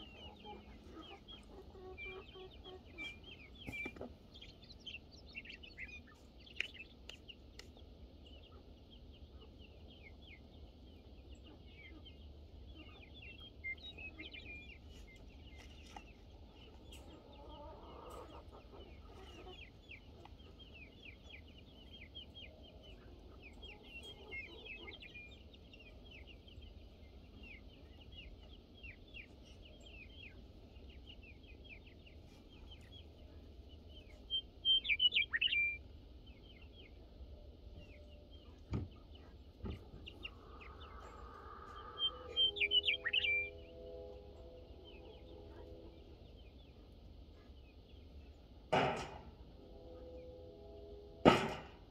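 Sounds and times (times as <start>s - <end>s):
rapid high chirping and peeping: 0.0s - 43.8s
chickens clucking: 0.0s - 49.2s
longer lower bird call: 40.2s - 46.4s.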